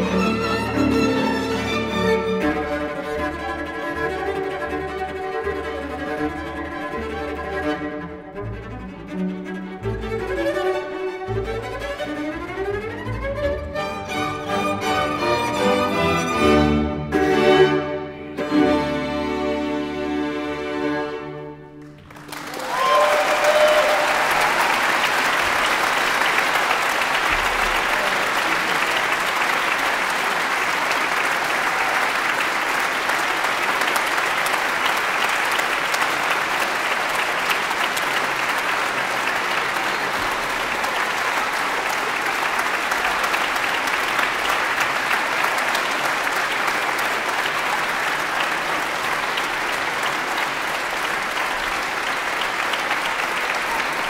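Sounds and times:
audience applause: 0.0 - 7.9, 21.8 - 54.0.

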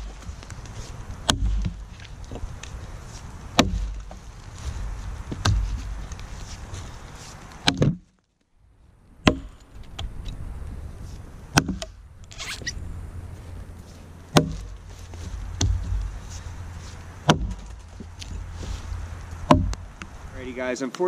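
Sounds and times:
axe chopping log: 0.0 - 2.5, 3.5 - 4.2, 5.3 - 6.0, 7.5 - 8.1, 9.2 - 9.6, 11.5 - 12.0, 14.3 - 16.2, 17.2 - 18.4, 19.3 - 20.1.

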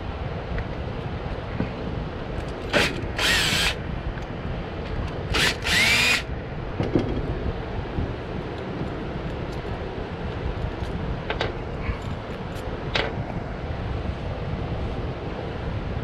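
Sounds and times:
cordless drill whirring: 2.8 - 3.8, 5.3 - 6.3.

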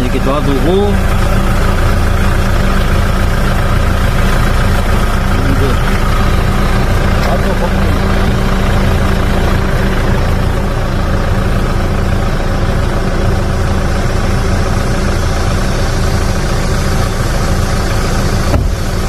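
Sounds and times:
car engine idling: 0.0 - 19.0
steady hum: 0.0 - 19.0.

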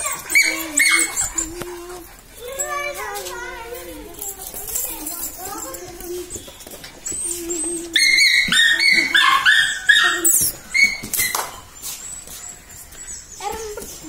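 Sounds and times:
dog yipping: 0.0 - 3.2, 4.7 - 12.6.

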